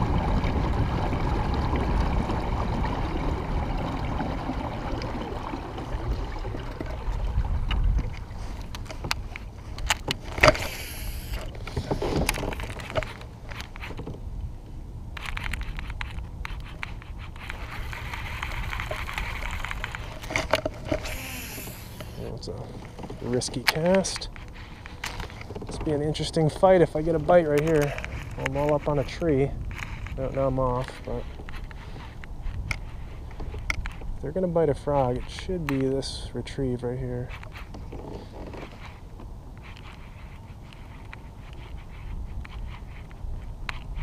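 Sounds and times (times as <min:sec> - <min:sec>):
clicks and knocks of gear: 0:07.7 - 0:14.2, 0:15.2 - 0:34.2.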